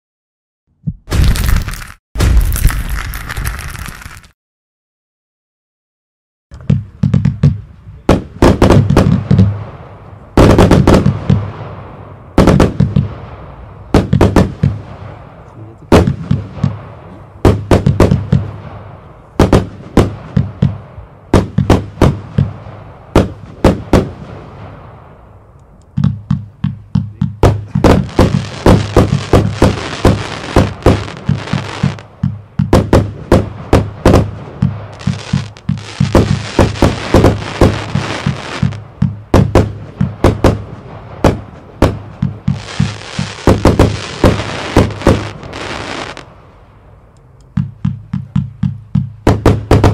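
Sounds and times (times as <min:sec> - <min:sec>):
fireworks bangs: 0:01.1 - 0:04.3, 0:06.6 - 0:46.6, 0:47.5 - 0:49.9
fireworks hiss: 0:34.1 - 0:38.8, 0:42.5 - 0:46.3.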